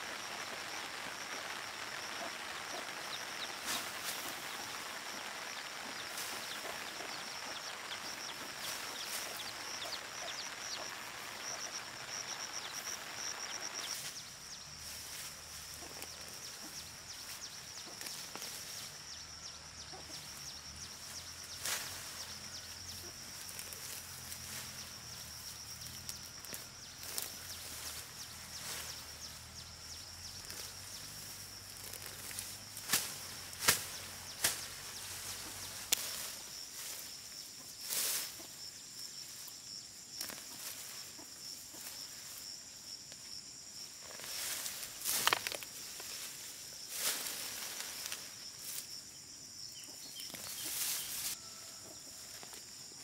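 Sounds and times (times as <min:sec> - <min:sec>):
leaves rustling: 0:00.0 - 0:53.0
roots snapping: 0:45.0 - 0:45.7.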